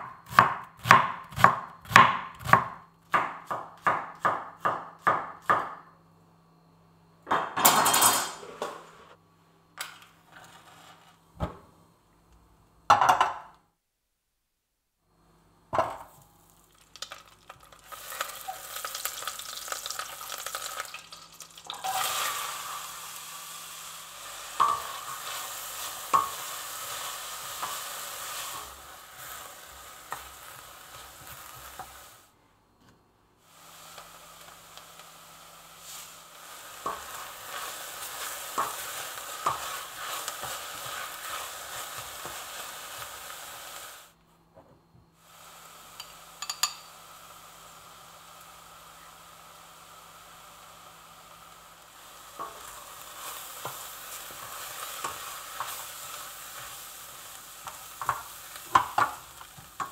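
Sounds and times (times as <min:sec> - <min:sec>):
onions sizzling in butter: 0:15.9 - 0:32.3, 0:33.4 - 0:44.2, 0:45.2 - 0:59.9.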